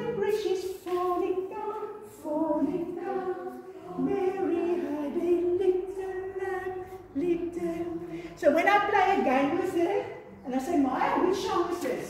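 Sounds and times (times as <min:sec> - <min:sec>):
group of voices singing: 0:00.0 - 0:12.0.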